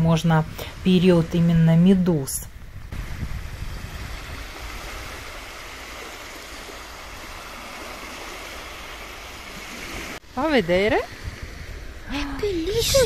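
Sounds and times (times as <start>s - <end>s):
small waves washing onto beach: 2.5s - 13.0s.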